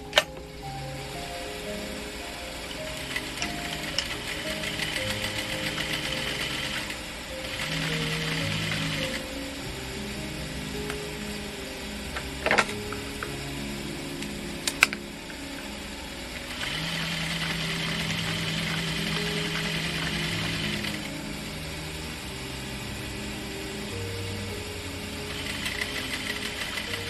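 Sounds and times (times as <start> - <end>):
sewing machine stitching: 2.9 - 9.2, 16.5 - 21.1, 25.3 - 27.0.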